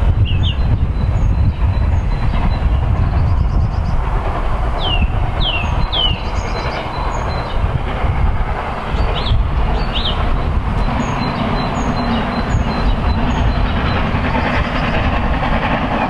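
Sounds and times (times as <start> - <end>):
distant steam train rumble: 0.0 - 16.0
wind on microphone: 0.0 - 16.0
bird chirping: 4.8 - 7.6, 9.0 - 15.0.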